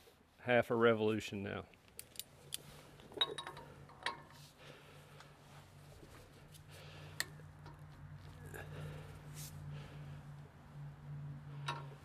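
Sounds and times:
faint low hum: 0:02.4 - 0:12.0.

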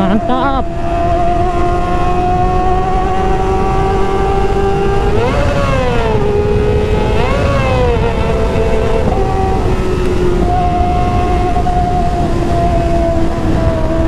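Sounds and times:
motorcycle engine revving: 0:00.0 - 0:14.0.

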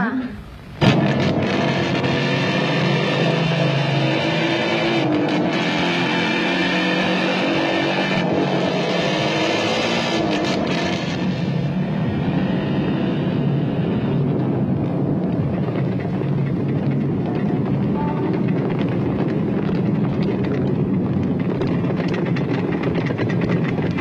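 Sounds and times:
motorcycle engine running: 0:07.0 - 0:24.0.

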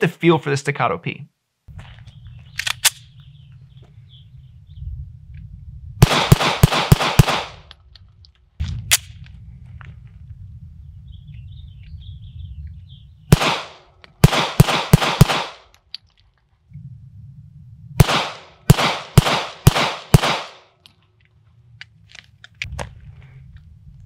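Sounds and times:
pistol shots: 0:06.0 - 0:07.7, 0:13.3 - 0:15.7, 0:18.0 - 0:20.7.

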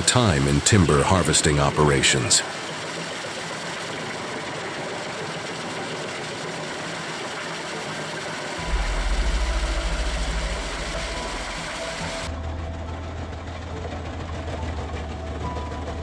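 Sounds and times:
wood chipper running: 0:00.0 - 0:16.0
heavy low rumble: 0:08.6 - 0:13.6.

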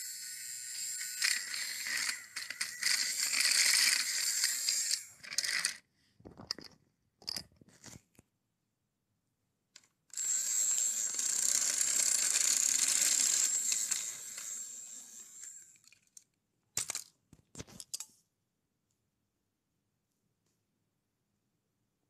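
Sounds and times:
toy train motor whirring: 0:00.0 - 0:05.9, 0:10.1 - 0:16.2.

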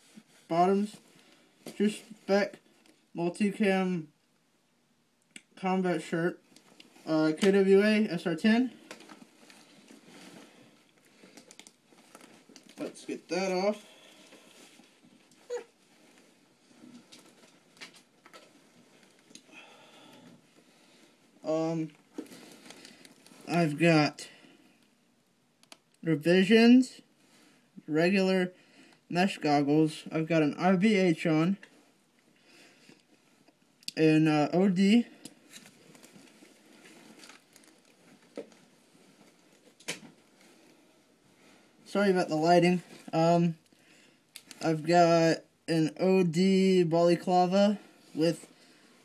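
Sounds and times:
faint rustling of gear: 0:06.4 - 0:23.6, 0:31.5 - 0:33.8, 0:34.9 - 0:44.7
camera handling rustling: 0:10.9 - 0:12.8.

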